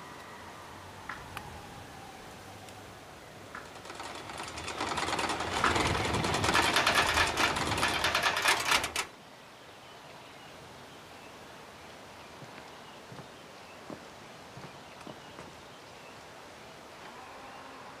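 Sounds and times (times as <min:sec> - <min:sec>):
wooden windmill clattering: 0:03.5 - 0:09.1.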